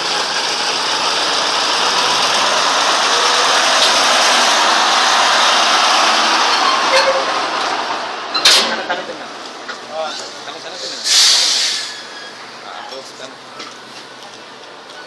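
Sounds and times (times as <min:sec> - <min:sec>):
truck diesel engine running: 0:00.0 - 0:08.3.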